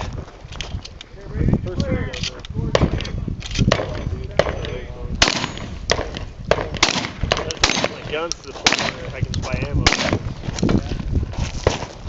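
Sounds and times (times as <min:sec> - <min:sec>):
rifle gunshots: 0:03.7 - 0:09.2, 0:09.8 - 0:10.3.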